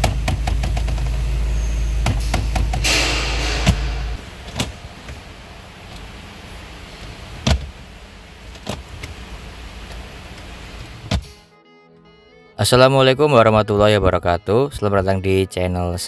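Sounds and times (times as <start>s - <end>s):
low steady hum: 0.0s - 11.4s
glove box latch clicking: 4.5s - 5.2s.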